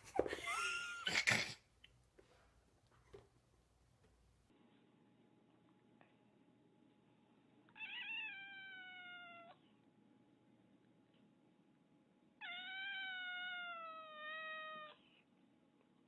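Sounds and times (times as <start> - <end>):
cat meowing: 7.8 - 9.6, 12.4 - 15.0.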